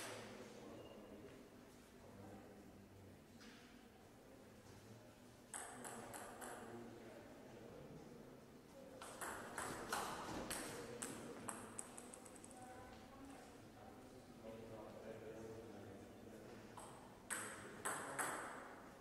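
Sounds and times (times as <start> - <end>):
table tennis ball bouncing: 5.5 - 6.6, 9.0 - 12.5, 16.8 - 18.7
table tennis rally: 5.5 - 6.7, 8.9 - 12.6, 16.8 - 19.0.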